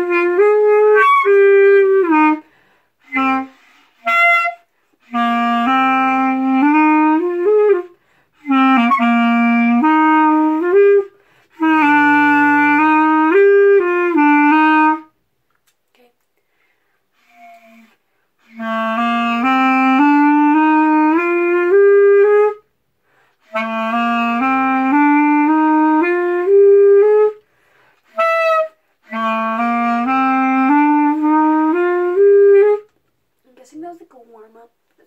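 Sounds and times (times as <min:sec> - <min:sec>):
clarinet playing rising runs: 0:00.0 - 0:15.1, 0:17.2 - 0:22.6, 0:23.4 - 0:27.4, 0:28.0 - 0:32.9
player breathing: 0:02.4 - 0:03.0, 0:27.4 - 0:28.0.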